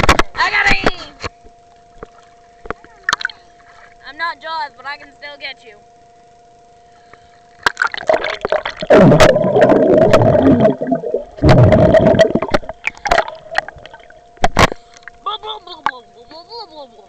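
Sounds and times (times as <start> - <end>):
water splashing and gurgling: 7.6 - 14.8
muffled underwater bubbling: 7.7 - 14.8.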